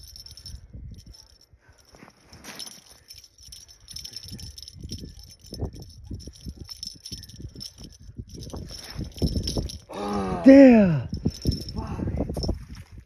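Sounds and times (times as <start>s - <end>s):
light jingling: 0.0s - 10.2s, 10.9s - 13.0s
wind gusting on microphone: 3.2s - 13.0s.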